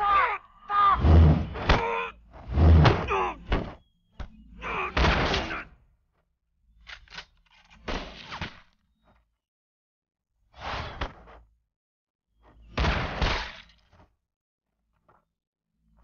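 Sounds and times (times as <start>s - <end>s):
man yelling: 0.0s - 1.2s
dull thuds: 1.0s - 4.4s.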